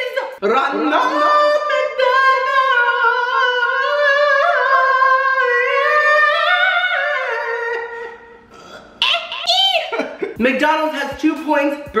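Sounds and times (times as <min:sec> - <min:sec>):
man singing a long high note: 0:00.4 - 0:08.2.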